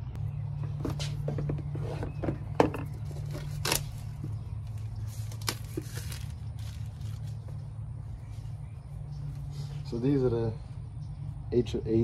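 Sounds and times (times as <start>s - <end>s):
plastic bag crinkling: 5.0s - 7.5s.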